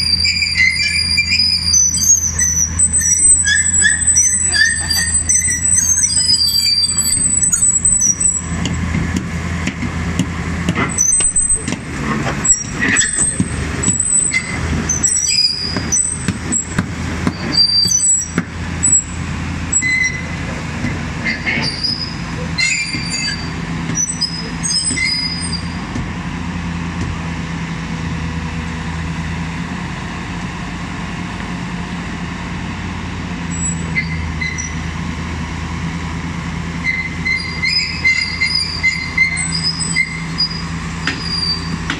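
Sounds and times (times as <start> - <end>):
high metallic squeals: 0.0 - 8.6, 10.9 - 11.7, 12.4 - 20.4, 21.2 - 25.8, 36.8 - 41.9
excavator engine drone: 0.0 - 41.9.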